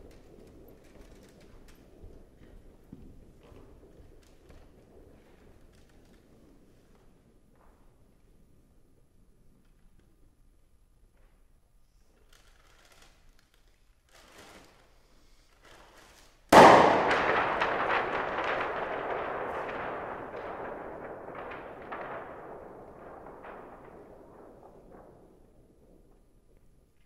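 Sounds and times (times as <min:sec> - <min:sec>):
crackling tail: 0:00.0 - 0:10.8, 0:12.0 - 0:27.0
papery rustles: 0:12.0 - 0:16.5
paper bag popping bang: 0:16.5 - 0:25.5.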